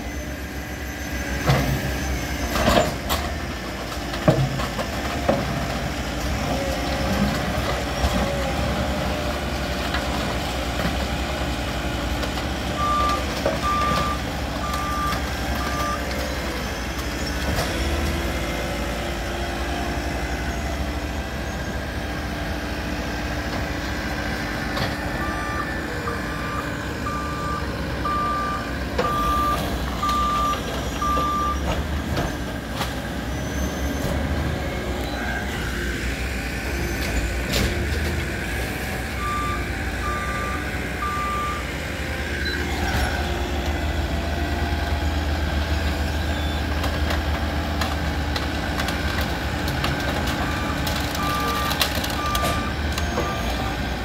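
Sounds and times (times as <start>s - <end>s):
diesel engines running: 0.0s - 54.0s
backup alarm beeping: 25.2s - 31.6s.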